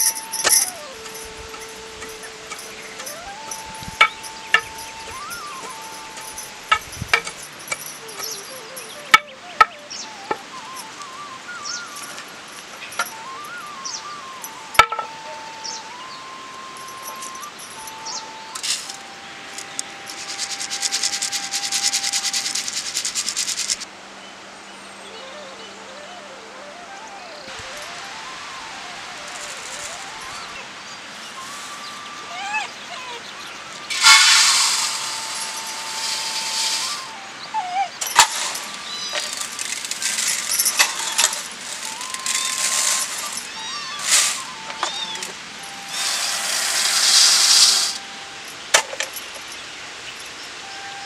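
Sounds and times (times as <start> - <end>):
brass vessels clinking: 0.0 - 23.9, 27.5 - 51.0
sieve scratching and rubbing: 33.9 - 37.2, 38.0 - 45.3
rice grain pouring: 38.1 - 43.4.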